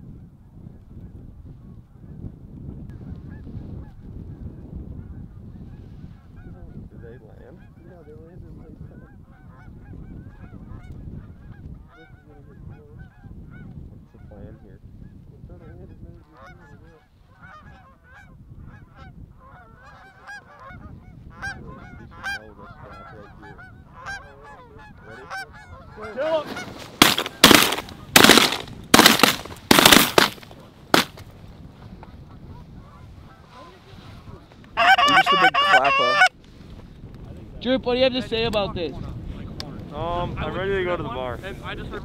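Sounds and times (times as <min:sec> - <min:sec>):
geese honking: 0:16.3 - 0:28.6, 0:34.8 - 0:36.3
loud sharp blasts: 0:27.0 - 0:30.4.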